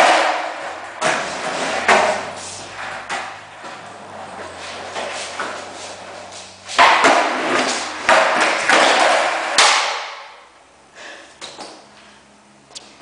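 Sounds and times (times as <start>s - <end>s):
skateboard clacks and thuds: 0.0s - 6.2s, 6.8s - 10.4s
skateboard wheels rolling on concrete: 0.0s - 10.4s.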